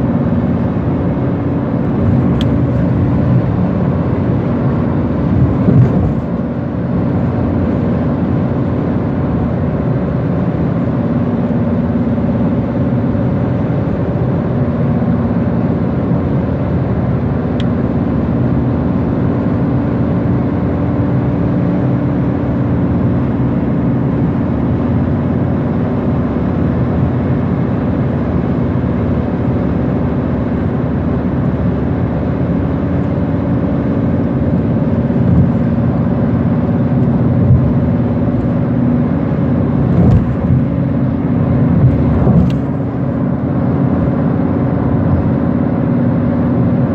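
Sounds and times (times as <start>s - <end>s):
tyre and road noise: 0.0s - 8.5s, 23.3s - 46.9s
low engine drone: 0.0s - 46.9s
car bumps: 5.3s - 6.4s, 39.8s - 40.8s, 41.7s - 42.8s.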